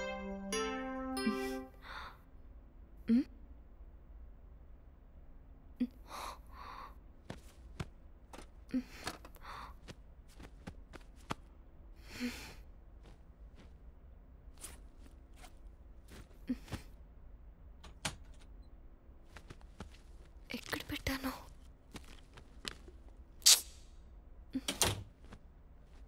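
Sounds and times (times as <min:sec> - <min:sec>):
low steady hum: 0:00.0 - 0:26.0
woman breathing and sighing: 0:01.2 - 0:02.3, 0:05.8 - 0:07.0, 0:08.7 - 0:10.0, 0:12.0 - 0:13.2, 0:16.2 - 0:17.0
handling knocks and clicks: 0:07.3 - 0:09.4, 0:17.8 - 0:18.6.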